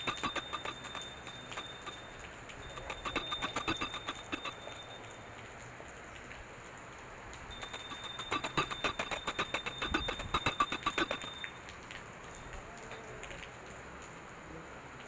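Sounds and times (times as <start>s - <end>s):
steady rain falling: 0.0s - 3.2s, 4.0s - 8.2s, 9.7s - 15.0s
rapid ticks: 0.0s - 6.3s, 7.3s - 13.8s
faint high whistle: 7.5s - 11.6s.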